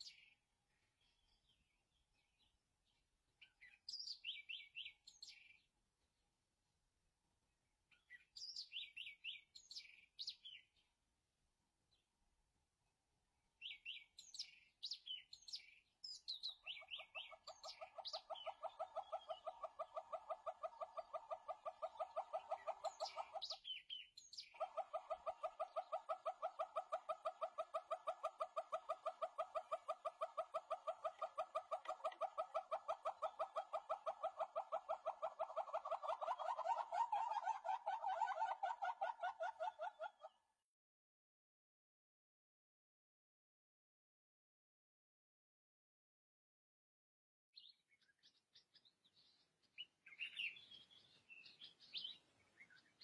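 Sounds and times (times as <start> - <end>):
small birds chirping: 0.0 - 6.3, 7.9 - 11.0, 13.6 - 40.5, 47.6 - 53.0
hornbill rapid clucking calls: 16.4 - 23.8, 24.4 - 40.4.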